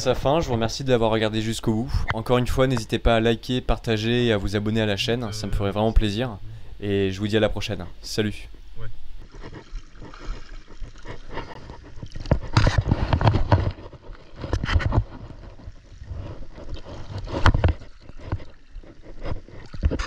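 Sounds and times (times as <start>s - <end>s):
water sloshing around wading legs: 9.2s - 20.0s.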